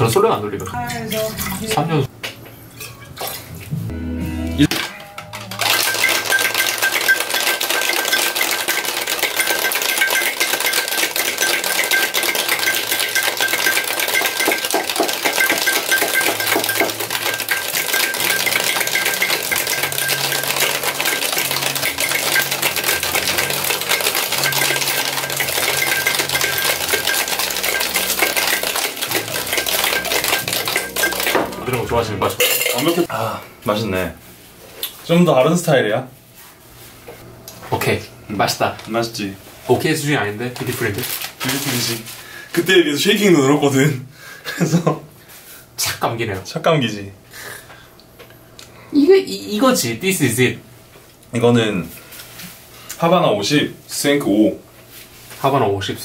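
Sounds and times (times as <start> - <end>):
ice rattling in cocktail shaker: 4.8 - 33.1, 40.6 - 42.0.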